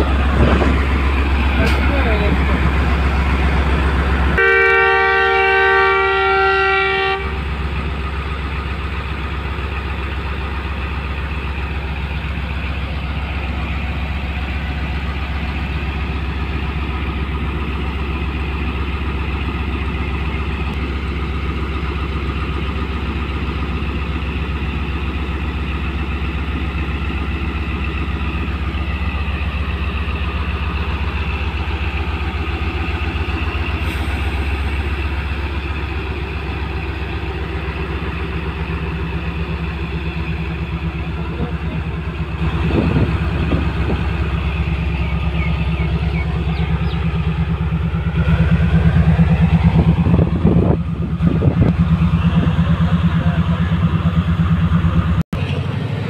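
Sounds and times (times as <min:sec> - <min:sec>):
diesel engine low hum: 0:00.0 - 0:56.0
locomotive horn chord: 0:04.3 - 0:07.6.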